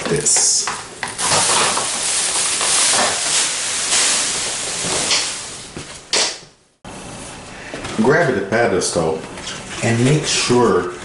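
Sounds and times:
plastic sheet rustling and crinkling: 1.2s - 6.0s.

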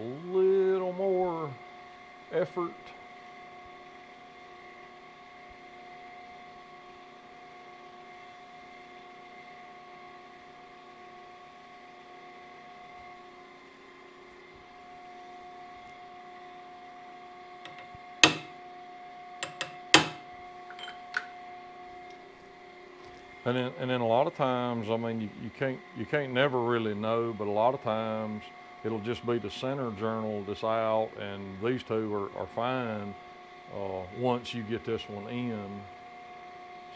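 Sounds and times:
shop machinery humming: 17.6s - 18.8s, 19.4s - 36.1s
sharp metal clanks: 17.7s - 18.6s, 19.4s - 21.3s.

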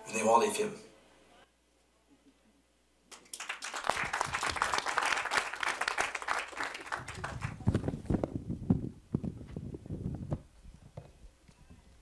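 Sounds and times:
audience applauding: 3.1s - 7.9s.

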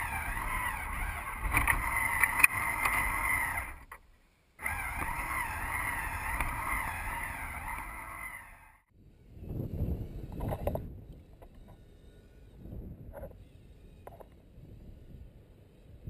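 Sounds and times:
toy motor and gears whining: 0.0s - 3.9s, 4.6s - 8.9s, 10.0s - 16.0s.

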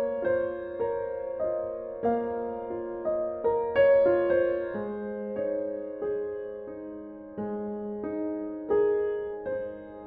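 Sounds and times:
slow piano music: 0.0s - 10.0s.

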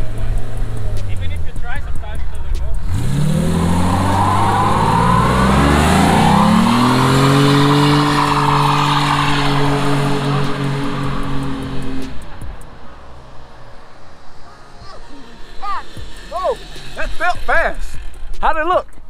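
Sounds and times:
car engine revving: 0.0s - 19.0s
tyres spinning: 2.2s - 19.0s.

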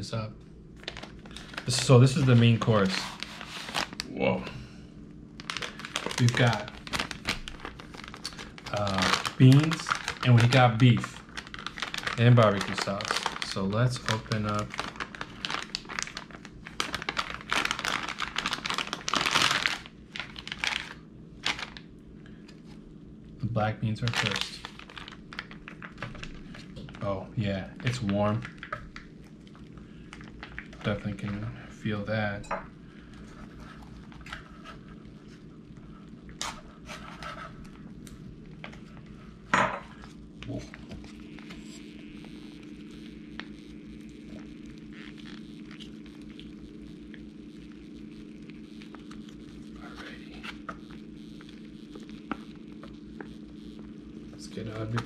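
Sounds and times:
low steady hum: 0.0s - 55.0s
plastic bag rustling and crackling: 0.8s - 4.1s, 5.4s - 22.0s, 23.8s - 31.6s.

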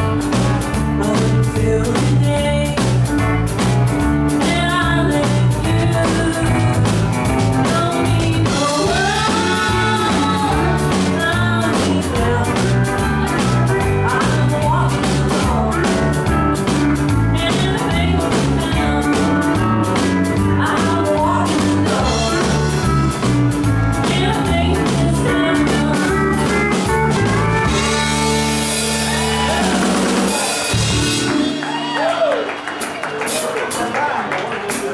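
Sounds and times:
guitar: 0.0s - 33.4s
drums: 0.0s - 34.9s
woman singing: 1.0s - 3.3s, 4.3s - 27.2s.

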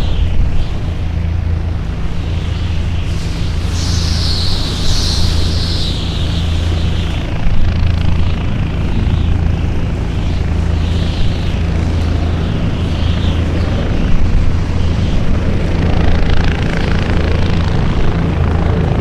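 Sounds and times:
low engine drone: 0.0s - 19.0s
rushing hiss: 1.7s - 7.5s.

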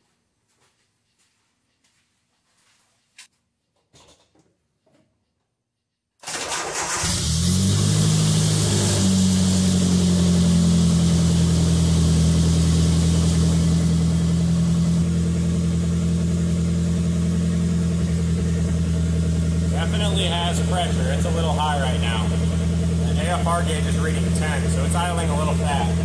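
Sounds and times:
engine starting and idling: 6.2s - 26.0s.

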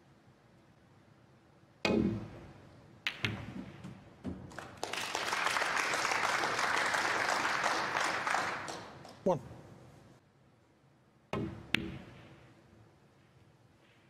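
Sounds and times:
ball knocking in pocket: 3.0s - 4.7s, 11.4s - 12.4s
snooker balls clicking: 3.0s - 4.8s
audience applause: 4.5s - 9.0s.

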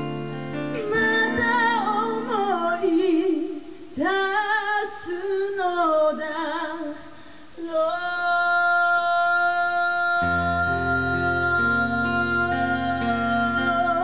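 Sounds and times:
acoustic guitar strumming: 0.0s - 2.8s
woman singing: 0.7s - 14.0s.

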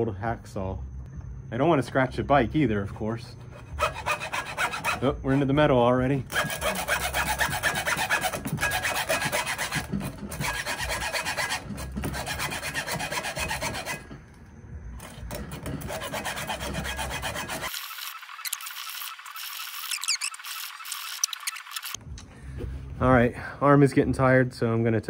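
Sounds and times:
hacksaw sawing through cable: 3.4s - 14.2s, 15.0s - 22.0s.

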